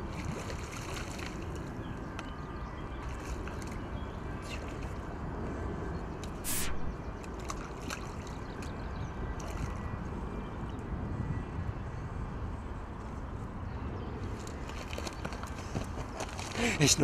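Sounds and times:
water sloshing and splashing: 0:00.0 - 0:01.8, 0:06.4 - 0:10.0.

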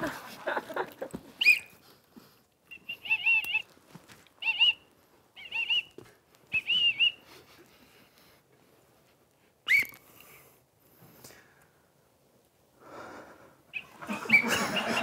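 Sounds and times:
people laughing: 0:00.0 - 0:01.3, 0:13.8 - 0:15.0
whistle toots: 0:01.4 - 0:01.8, 0:02.7 - 0:03.6, 0:04.4 - 0:04.8, 0:05.4 - 0:07.2, 0:09.7 - 0:10.0, 0:13.7 - 0:15.0.

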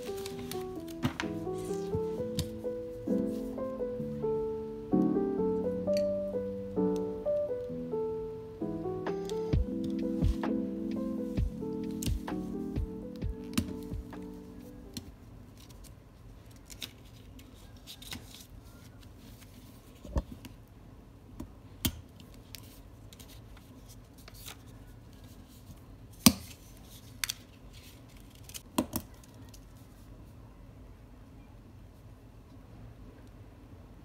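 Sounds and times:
plastic sleeve rustling: 0:00.0 - 0:03.6.

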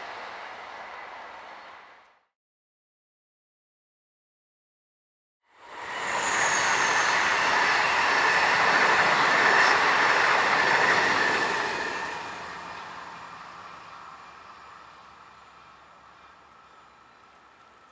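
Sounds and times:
train passing at speed: 0:00.0 - 0:02.1, 0:05.5 - 0:17.9
train wheels rumbling on rail: 0:05.6 - 0:17.9.

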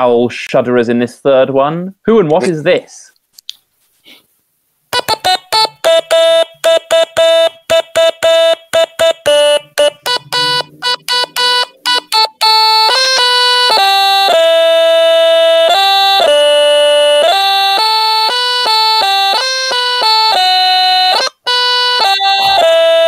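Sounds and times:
stylophone melody: 0:04.9 - 0:23.0.

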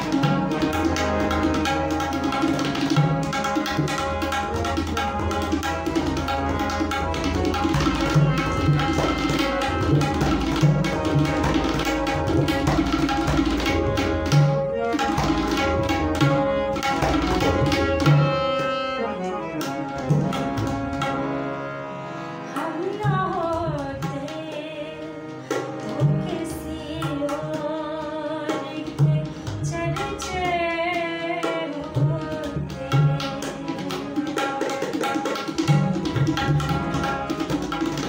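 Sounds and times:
tabla strokes: 0:00.0 - 0:21.4, 0:28.5 - 0:38.0
harmonium chords: 0:00.0 - 0:38.0
woman singing: 0:22.6 - 0:34.6.

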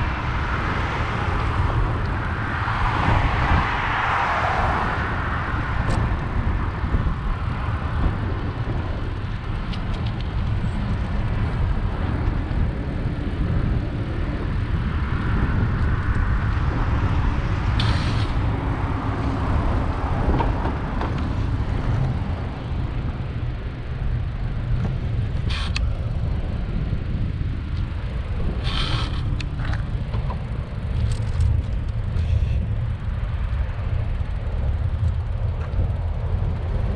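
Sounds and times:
bicycle tyre and road noise: 0:00.0 - 0:36.9
wind rumble on microphone: 0:00.0 - 0:36.9.

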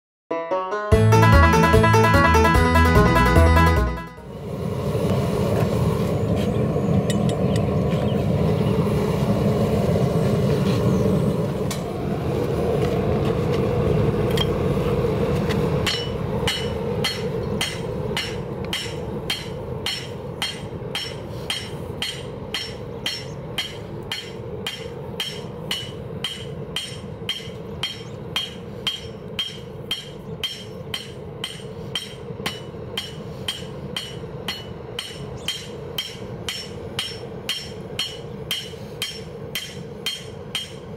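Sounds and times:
hammer striking anvil: 0:15.8 - 0:40.9.

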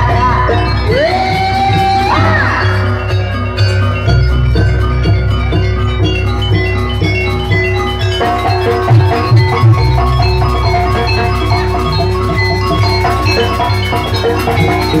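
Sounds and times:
drums with heavy low pulse: 0:00.0 - 0:15.0
metal-keyed percussion notes: 0:00.0 - 0:15.0.

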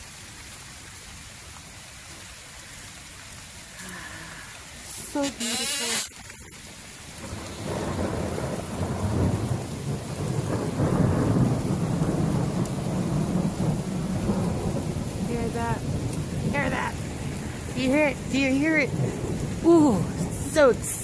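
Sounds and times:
steady rain: 0:00.0 - 0:21.0
thunder rumbling: 0:06.6 - 0:21.0.

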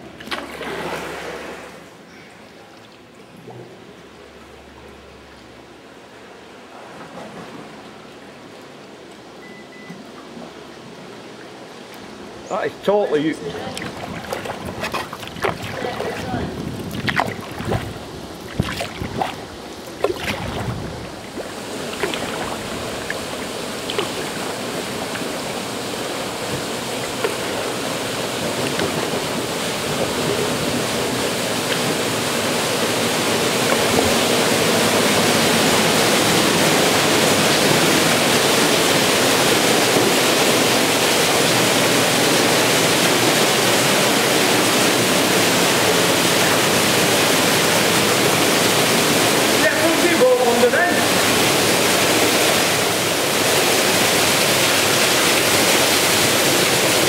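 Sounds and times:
waterfall rushing splash: 0:13.1 - 0:57.0.

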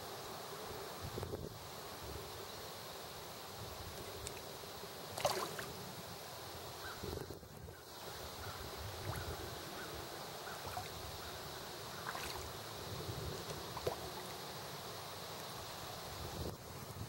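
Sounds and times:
small splashes at pond surface: 0:05.1 - 0:05.8, 0:08.9 - 0:09.4, 0:10.6 - 0:11.1, 0:11.8 - 0:12.7, 0:13.4 - 0:14.5
wind on microphone: 0:16.2 - 0:17.0.

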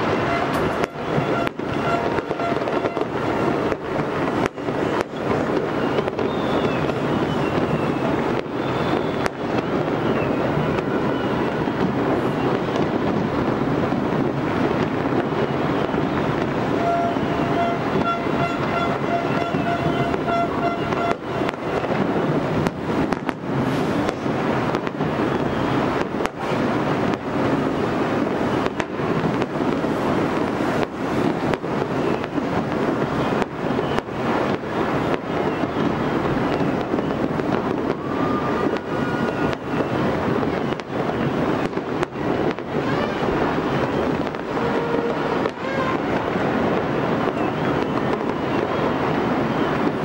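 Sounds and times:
faint firework whistles: 0:00.0 - 0:50.0
fireworks crackling and popping: 0:00.0 - 0:50.0
sharp firework bangs: 0:00.0 - 0:50.0
wind noise on microphone: 0:00.0 - 0:50.0.

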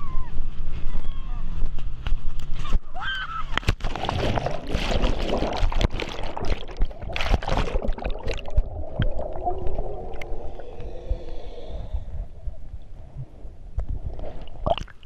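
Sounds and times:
splash into water: 0:03.6 - 0:08.6
underwater rushing and bubbling: 0:03.7 - 0:15.0.

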